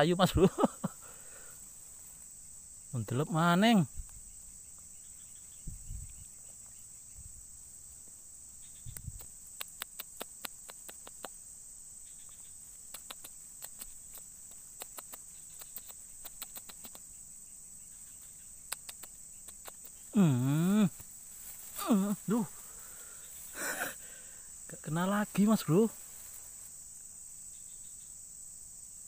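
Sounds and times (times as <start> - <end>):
insects trilling: 0.0 - 29.0
faint sharp clicks: 8.9 - 11.4, 12.3 - 17.1, 18.6 - 20.0.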